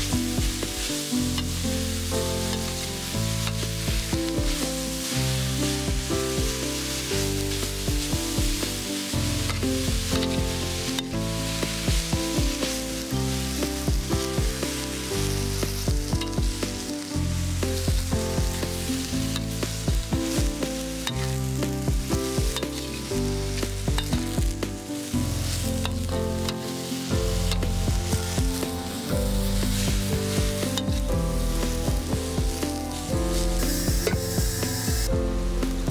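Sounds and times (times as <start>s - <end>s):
background music: 0.0s - 35.9s
food sizzling in a wok: 0.0s - 35.9s
spatula scraping a pan: 22.4s - 24.1s, 25.1s - 31.1s.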